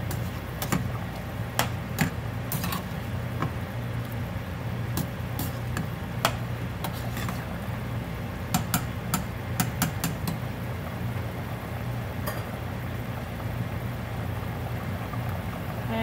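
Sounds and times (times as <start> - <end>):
steady low hum: 0.0 - 16.0
spoon tapping pot: 8.5 - 10.4.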